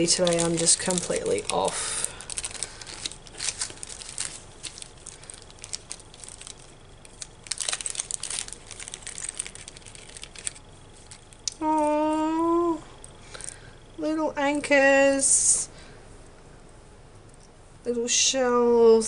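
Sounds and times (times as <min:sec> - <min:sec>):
cellophane packets crinkling: 0:00.0 - 0:11.7
person humming: 0:11.5 - 0:12.9.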